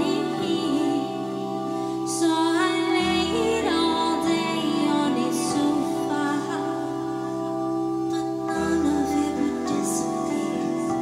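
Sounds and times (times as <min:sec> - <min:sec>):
keyboard chords: 0:00.0 - 0:11.0
woman singing: 0:00.0 - 0:11.0.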